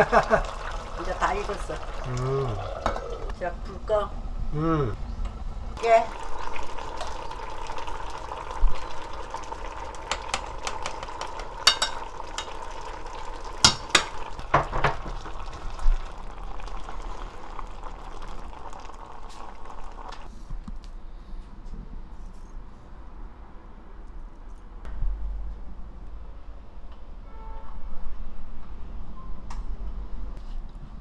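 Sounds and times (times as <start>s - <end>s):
stew bubbling in a pot: 0.0s - 3.4s, 5.8s - 20.3s
metal ladle knocking on pot: 13.6s - 15.2s.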